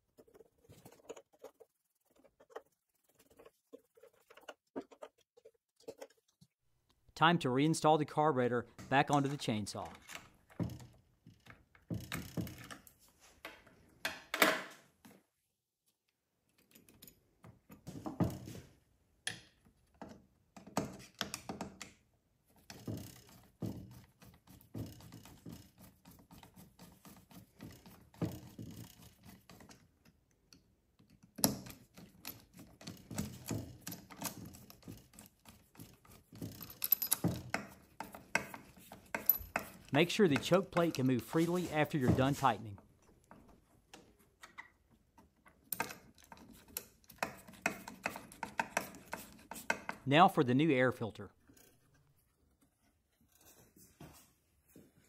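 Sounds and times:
small parts clicking and tapping: 27.5s - 41.1s, 43.0s - 50.0s.

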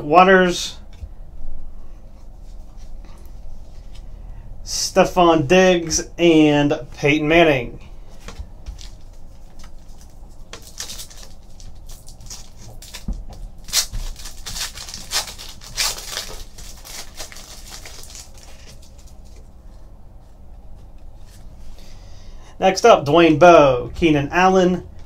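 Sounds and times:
cards being handled: 8.1s - 19.8s
foil wrapper crinkling and tearing: 8.7s - 19.4s.

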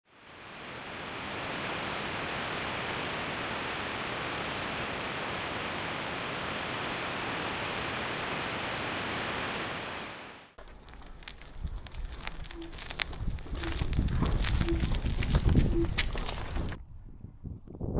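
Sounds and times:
rushing wind noise: 11.2s - 17.9s.

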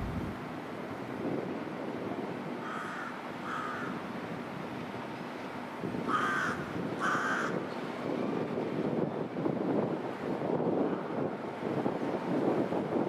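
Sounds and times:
diesel locomotive rumble: 0.0s - 0.4s
crow cawing: 2.6s - 4.0s, 6.1s - 7.6s.

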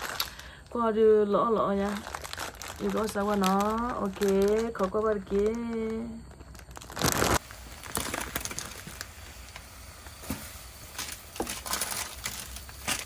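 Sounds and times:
plastic packet crinkling: 0.0s - 0.8s, 1.7s - 9.4s, 10.9s - 13.0s
water heating on gas burner: 3.0s - 13.0s.

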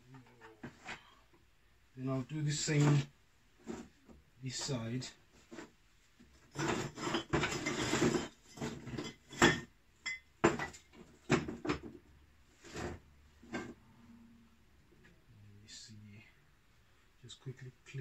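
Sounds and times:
metal tools scraping and rattling: 6.4s - 10.8s.

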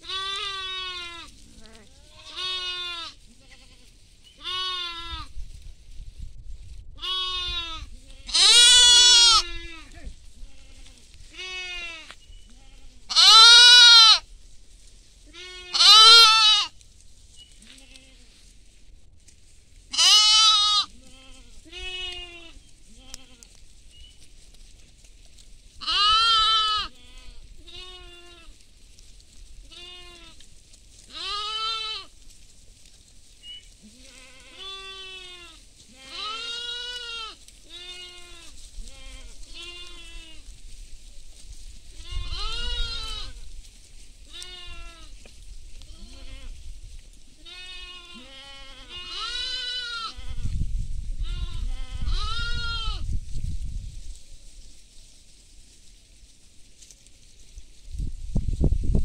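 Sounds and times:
sheep and goats bleating: 0.0s - 5.3s, 7.0s - 14.3s, 15.2s - 16.8s, 17.5s - 18.5s, 19.9s - 24.2s, 25.8s - 28.7s, 29.6s - 32.2s, 33.4s - 40.6s, 41.4s - 43.5s, 44.2s - 50.6s, 51.2s - 53.1s.

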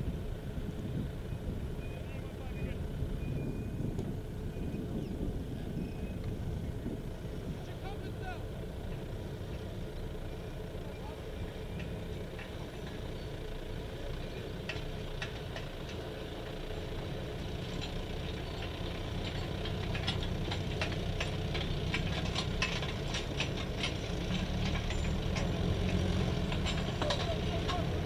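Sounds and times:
vehicle engines idling: 0.0s - 28.0s
light clicks and rattles: 14.1s - 16.7s, 17.6s - 28.0s.

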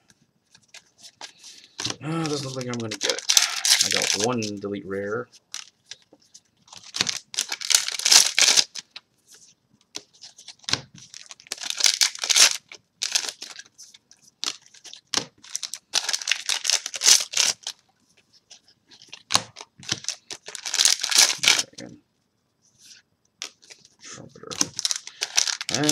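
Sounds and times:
cards and wrappers rustling: 0.5s - 21.9s, 22.8s - 25.9s.

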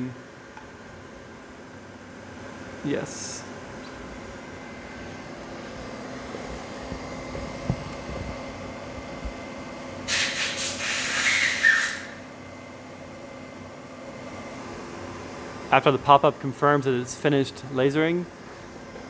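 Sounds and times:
loud hiss: 10.1s - 12.2s.

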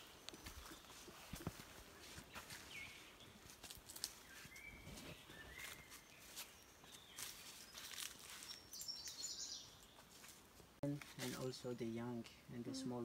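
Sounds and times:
faint footsteps on stone steps: 0.0s - 8.6s
birds calling: 0.0s - 10.3s.

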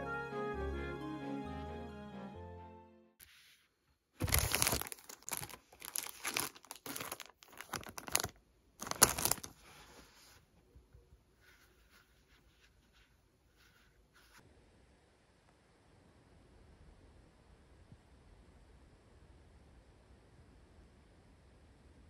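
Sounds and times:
plastic packaging crinkling: 4.2s - 9.8s.

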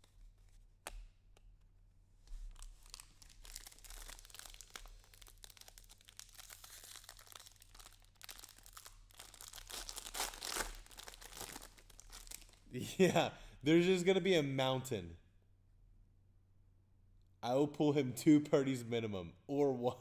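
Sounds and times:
foil wrapper crinkling and tearing: 2.3s - 12.7s.

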